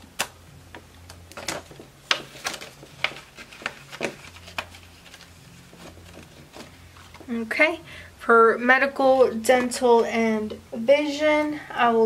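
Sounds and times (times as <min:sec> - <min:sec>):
plastic envelopes crackling: 0:01.3 - 0:07.3
paper banknotes rustling: 0:01.4 - 0:07.3.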